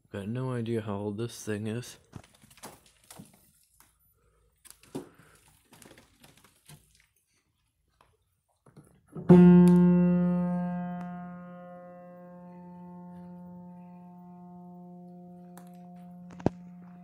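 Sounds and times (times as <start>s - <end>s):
low piano note ringing: 9.2s - 17.0s.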